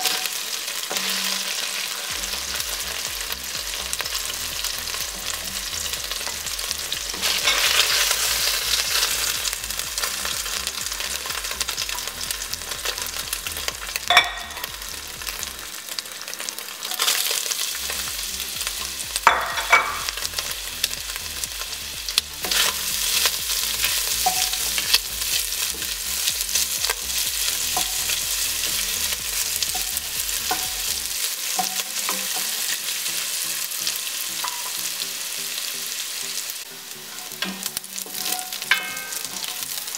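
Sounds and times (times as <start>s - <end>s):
oil sizzling in a pot: 0.0s - 39.9s
wooden spoon knocking on pot: 14.1s - 14.7s, 19.2s - 20.1s.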